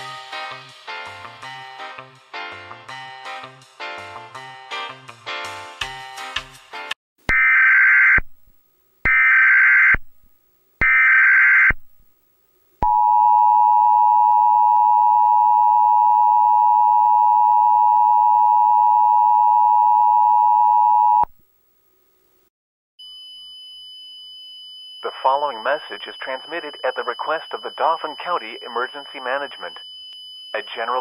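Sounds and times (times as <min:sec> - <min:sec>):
faint steady high tone: 0:12.8 - 0:21.3.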